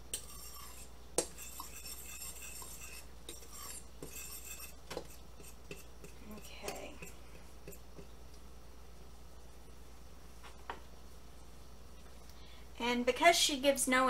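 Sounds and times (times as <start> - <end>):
fork scraping and clinking bowl: 0.1 - 8.1.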